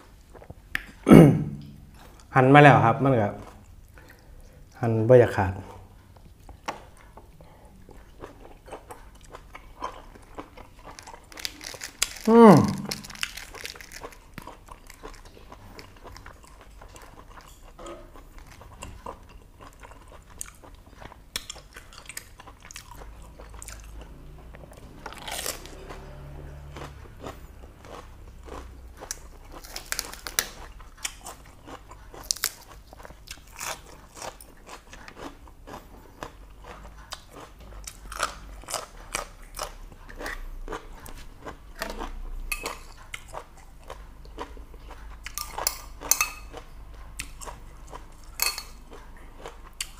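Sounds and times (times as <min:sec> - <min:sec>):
chewing with crisp crunches: 0:00.0 - 0:49.9.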